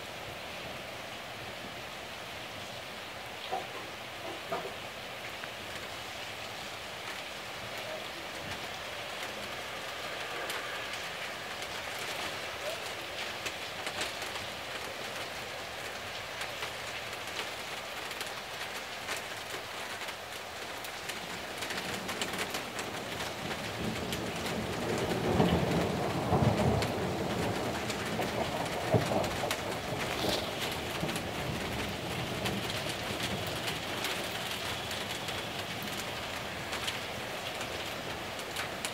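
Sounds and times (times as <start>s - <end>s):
heavy rain falling: 0.0s - 38.9s
roll of thunder: 23.6s - 32.8s.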